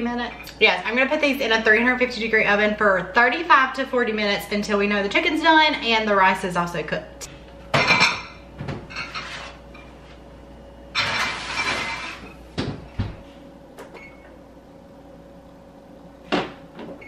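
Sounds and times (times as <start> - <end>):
tray sliding into oven: 11.0 - 12.4
short oven beep: 14.0 - 14.4.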